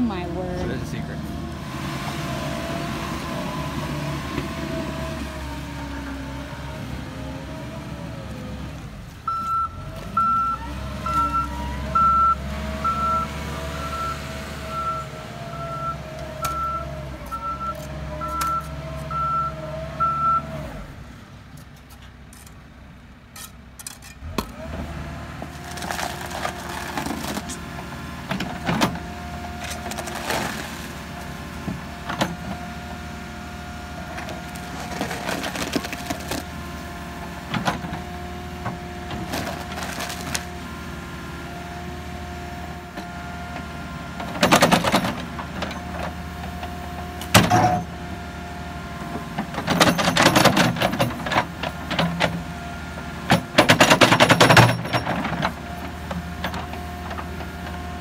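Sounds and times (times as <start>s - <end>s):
diesel engine running: 0.0s - 58.0s
reversing alarm beeping: 9.3s - 20.5s.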